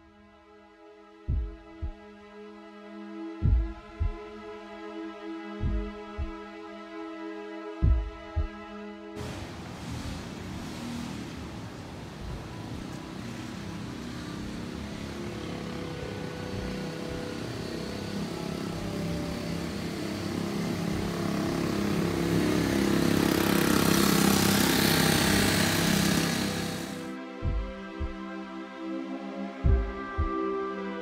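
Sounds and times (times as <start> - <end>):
music: 0.0 - 9.4, 12.2 - 31.0
hiss: 9.2 - 11.8, 24.6 - 27.1
engine running: 13.2 - 28.2.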